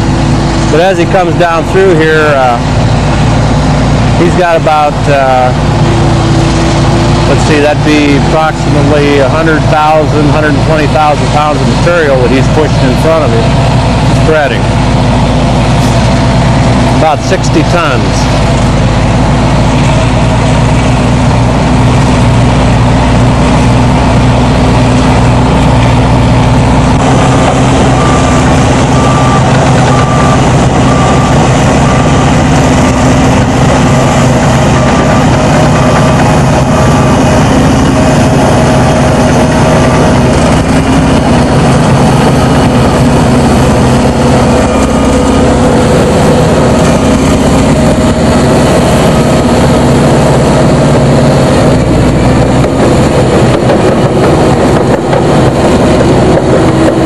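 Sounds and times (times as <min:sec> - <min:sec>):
bulldozer diesel engine running: 0:00.0 - 0:57.0
repeated beep: 0:27.0 - 0:33.5.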